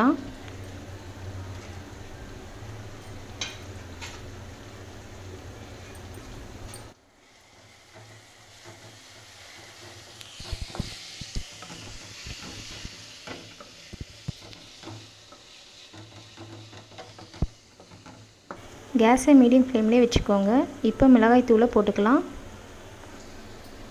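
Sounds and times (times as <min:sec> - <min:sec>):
food sizzling: 0:00.0 - 0:23.9
wooden spatula knocking pan: 0:07.9 - 0:18.6.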